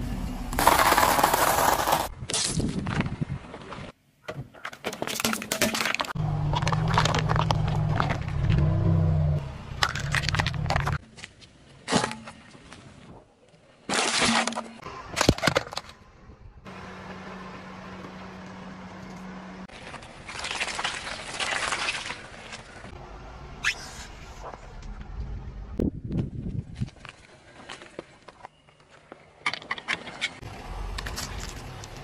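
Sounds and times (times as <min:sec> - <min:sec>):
tyre crushing objects: 0:00.5 - 0:03.1
car engine humming: 0:06.2 - 0:11.0, 0:15.9 - 0:20.2.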